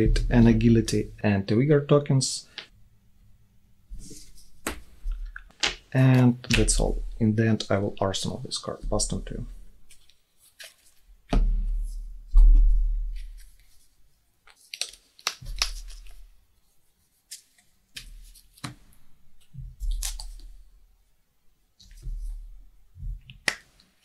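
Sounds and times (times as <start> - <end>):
cards clicking and rustling: 14.5 - 16.2, 17.3 - 20.5.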